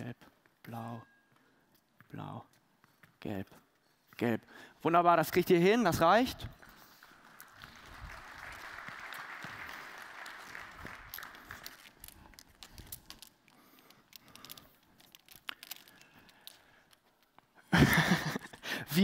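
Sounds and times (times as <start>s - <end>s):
plastic hoops clicking and knocking: 6.2s - 19.0s.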